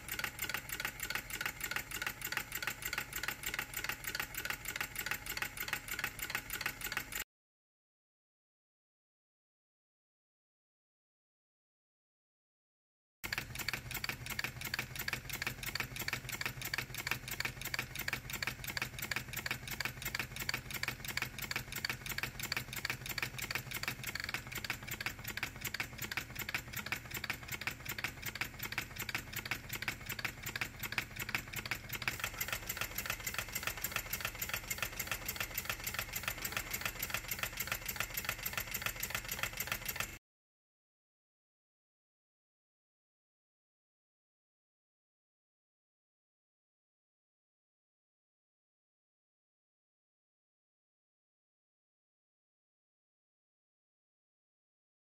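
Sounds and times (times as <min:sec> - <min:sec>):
model steam engine clattering: 0:00.0 - 0:07.2, 0:13.3 - 0:40.2.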